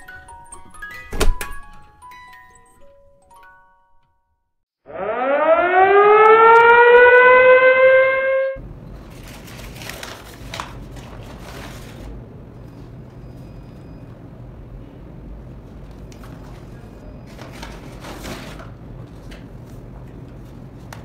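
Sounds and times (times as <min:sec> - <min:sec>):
siren winding up: 0:04.9 - 0:08.6
air conditioner hum: 0:08.3 - 0:21.0
paper bag rustling: 0:09.0 - 0:12.2, 0:16.4 - 0:19.3.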